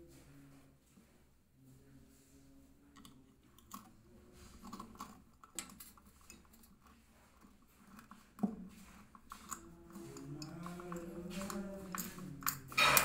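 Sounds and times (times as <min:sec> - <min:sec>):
fuse carrier clicking and scraping: 0:04.6 - 0:13.0.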